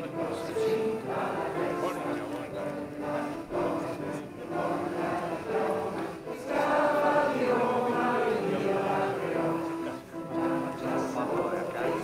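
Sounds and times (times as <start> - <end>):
crowd singing slow melody: 0.0 - 12.0.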